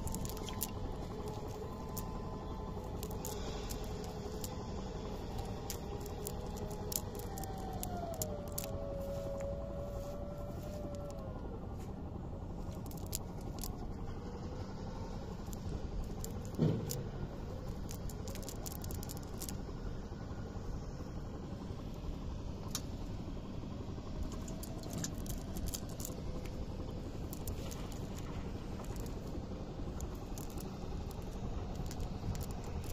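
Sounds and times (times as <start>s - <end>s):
clicks and rustles of wet net: 0.0s - 4.6s, 5.2s - 11.9s, 12.6s - 13.9s, 17.7s - 19.6s, 24.3s - 26.6s
low rumble: 0.0s - 32.9s.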